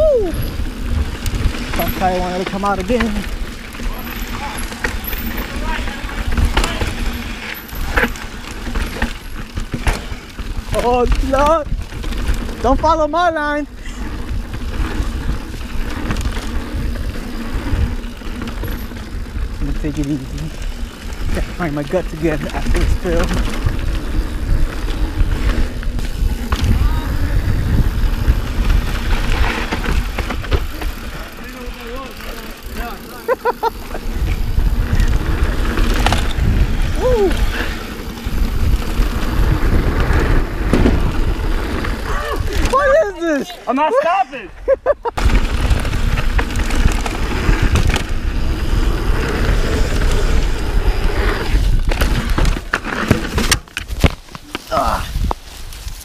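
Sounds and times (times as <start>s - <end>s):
wind buffeting microphone: 0.0s - 13.1s, 13.7s - 31.8s, 33.6s - 43.2s, 44.7s - 52.7s, 53.9s - 56.0s
bike clicks and rattles: 0.0s - 44.2s, 44.8s - 56.0s
tyres rolling on loose dirt: 0.1s - 56.0s
tyre rumble on dirt: 38.2s - 42.8s.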